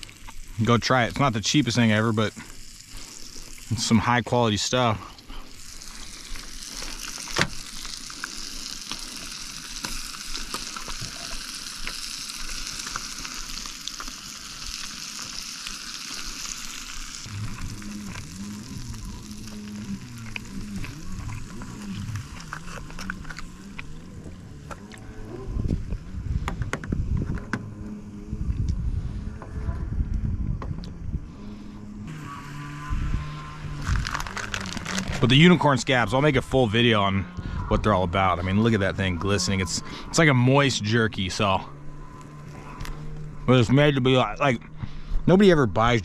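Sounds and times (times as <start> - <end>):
fish sizzling in a pot: 0.0 - 23.7, 32.5 - 35.2
low wavering hum: 0.0 - 46.0.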